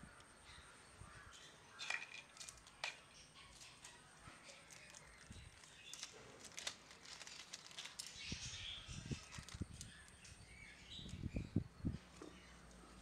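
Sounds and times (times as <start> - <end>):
plastic bag rustling: 1.8 - 10.2.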